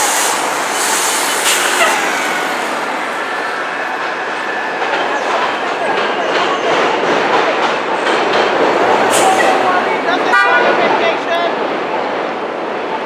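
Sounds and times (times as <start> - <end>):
bus engine running: 0.0 - 5.9
subway train rumbling on rails: 0.0 - 13.0.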